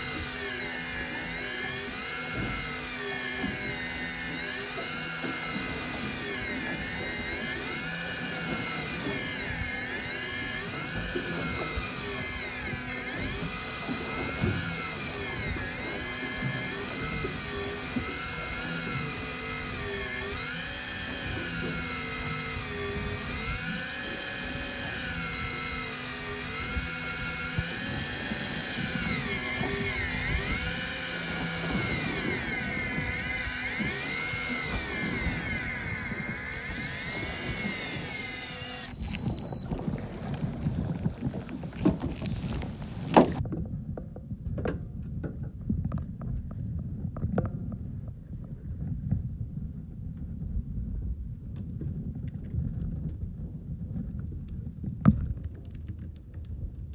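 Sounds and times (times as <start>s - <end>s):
electric fishing reel whining: 0.0s - 43.4s
steady low hum: 0.0s - 55.4s.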